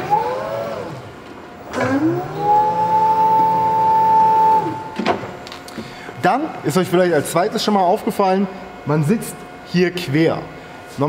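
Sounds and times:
hydraulic pump motor whining: 0:00.0 - 0:06.7.

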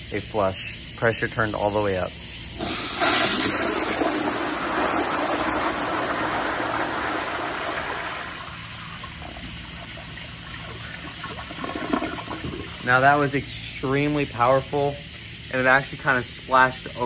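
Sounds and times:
water rushing into bowl: 0:02.6 - 0:13.3
toilet flushing: 0:02.6 - 0:13.4.

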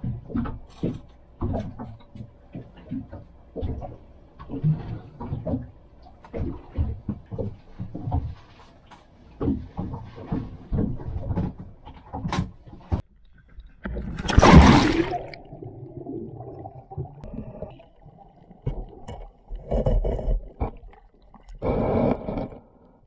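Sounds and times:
underwater bubbling: 0:13.1 - 0:23.0
fin strokes in water: 0:13.8 - 0:17.3
water rushing past camera: 0:14.1 - 0:17.7
loud splash into water: 0:14.2 - 0:15.8.

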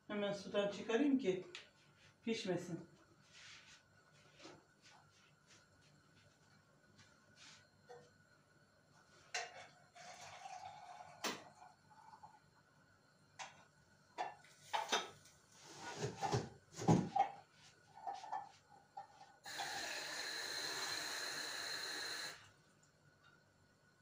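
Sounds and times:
kitchenware clattering: 0:14.2 - 0:15.2
sink tap running: 0:19.5 - 0:22.4.

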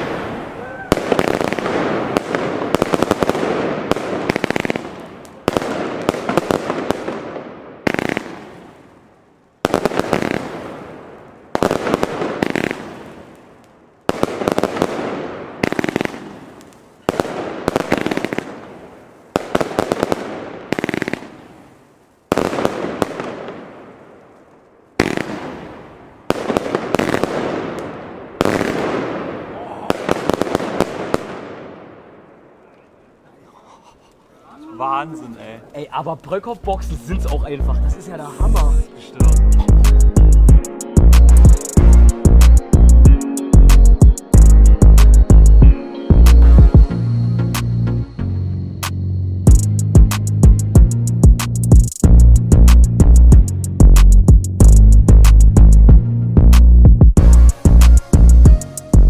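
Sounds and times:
firework launches and bursts: 0:00.0 - 0:32.0.

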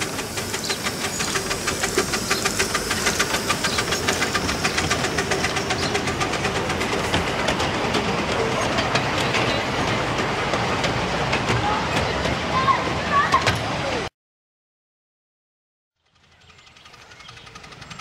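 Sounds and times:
steam hiss: 0:00.0 - 0:07.5
miniature steam train clattering: 0:00.0 - 0:13.8, 0:16.1 - 0:18.0.

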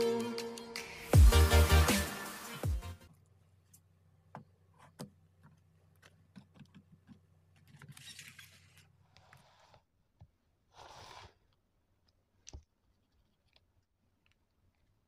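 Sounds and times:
electronic music: 0:00.0 - 0:03.0.

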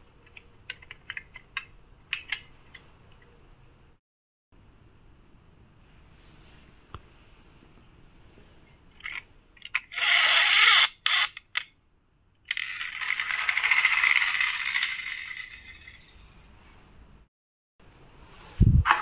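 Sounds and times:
toy car motor rattling wind-up: 0:09.0 - 0:11.7, 0:12.5 - 0:16.5
toy car motor whirring: 0:09.8 - 0:11.6, 0:12.5 - 0:16.5.

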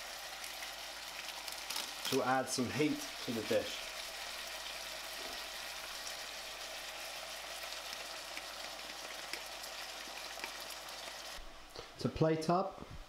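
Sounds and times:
stir-fry sizzling in a pan: 0:00.0 - 0:11.7
small crackles: 0:00.4 - 0:02.3, 0:07.7 - 0:11.1.

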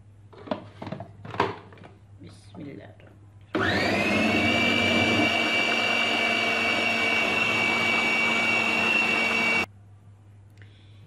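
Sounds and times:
food processor motor whine: 0:03.5 - 0:09.7.

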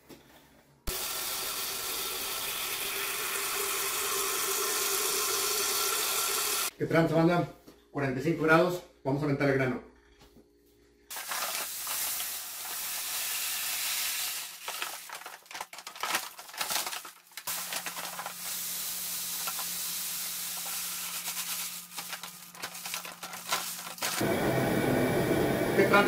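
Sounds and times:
paper sack crackling: 0:11.1 - 0:12.4, 0:14.4 - 0:19.8, 0:20.5 - 0:24.2.

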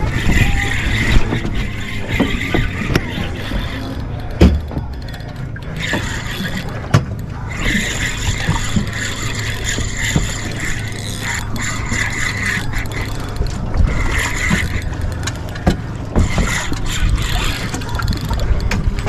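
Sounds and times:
fishing reel gears whirring: 0:00.0 - 0:19.0
reel click: 0:00.0 - 0:19.0.

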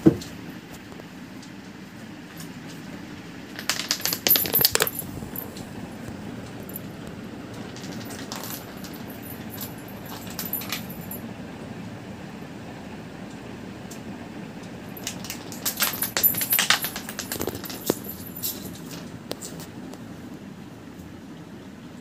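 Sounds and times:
steady low hum: 0:00.0 - 0:22.0
plastic pieces clicking on concrete: 0:03.6 - 0:05.0.

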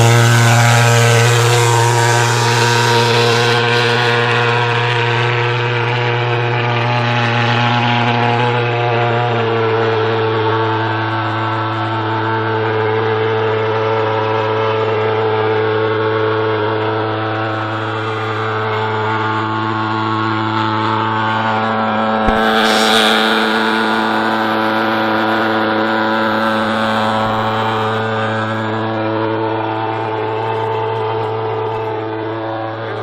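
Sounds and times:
fogging machine buzzing drone: 0:00.0 - 0:33.0
hiss: 0:22.3 - 0:28.0.

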